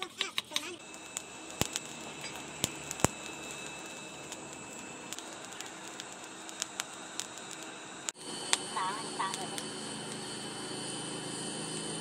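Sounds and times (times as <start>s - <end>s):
coals crackling and popping: 0.0s - 12.0s
forge fire rushing hiss: 0.7s - 12.0s.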